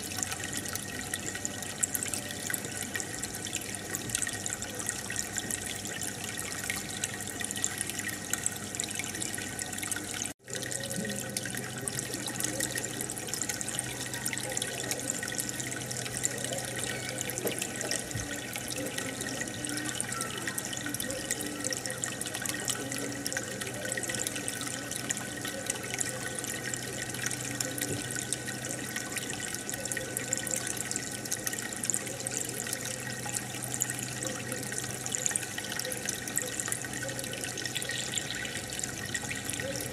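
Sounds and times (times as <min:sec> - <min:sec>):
aquarium water trickling and bubbling: 0:00.0 - 0:39.9.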